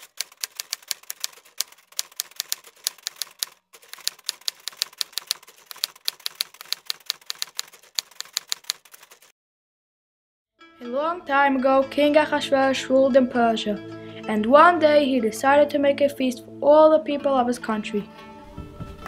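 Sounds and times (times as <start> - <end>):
typewriter keys clacking: 0.0 - 9.3.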